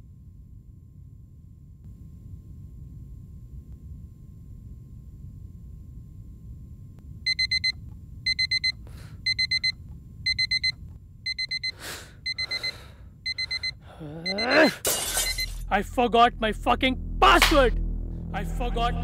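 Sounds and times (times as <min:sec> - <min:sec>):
alarm clock beeping: 0:07.3 - 0:15.7
low steady drone: 0:15.2 - 0:19.0.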